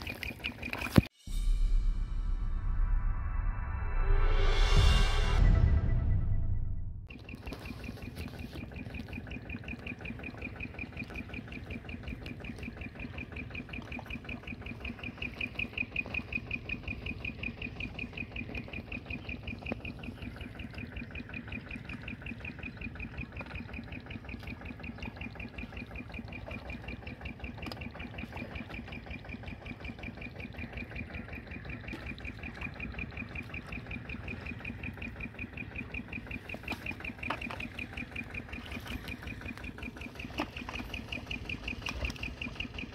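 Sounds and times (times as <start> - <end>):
faint steady hum: 0.0 - 42.9
low rumble: 1.2 - 28.0
insect chirping: 7.1 - 42.9.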